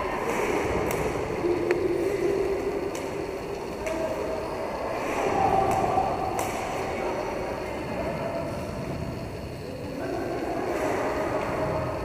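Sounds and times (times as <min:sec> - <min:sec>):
skate wheels rolling on rink floor: 0:00.0 - 0:12.0.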